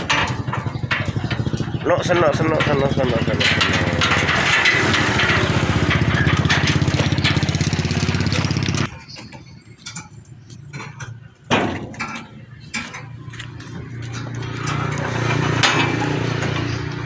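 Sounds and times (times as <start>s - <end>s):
loud short clatter: 0.0s - 8.9s
diesel engine chugging: 0.0s - 17.0s.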